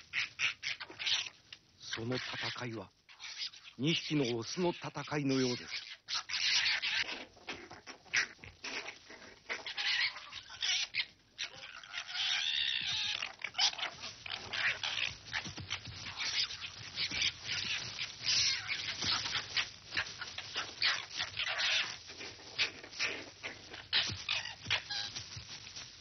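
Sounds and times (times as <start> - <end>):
foxes screeching and squealing: 0.0 - 25.9.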